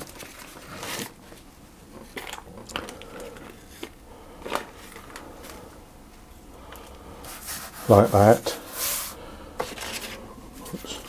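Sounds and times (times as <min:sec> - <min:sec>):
baking paper rustling and crinkling: 0:00.0 - 0:05.7, 0:07.2 - 0:11.0.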